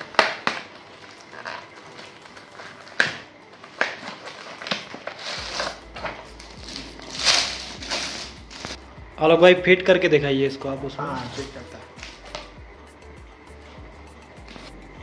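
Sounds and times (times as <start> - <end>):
plastic wrap crinkling: 0.0 - 8.8, 11.1 - 12.6.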